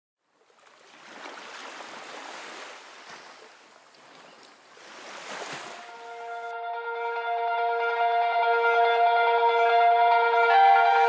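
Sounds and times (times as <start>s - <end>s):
ocean surf washing: 0.9s - 6.4s
sustained music tones: 5.8s - 11.0s.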